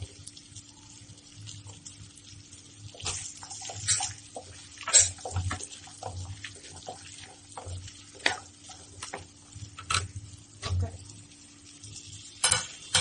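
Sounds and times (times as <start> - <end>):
light sizzle: 0.0 - 13.0
spatula scraping a pan: 3.0 - 8.9.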